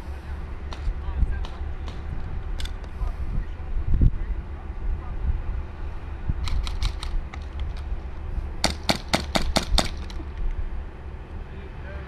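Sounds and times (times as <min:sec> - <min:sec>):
wind rumble on microphone: 0:00.0 - 0:08.7
airsoft guns firing: 0:08.6 - 0:10.2.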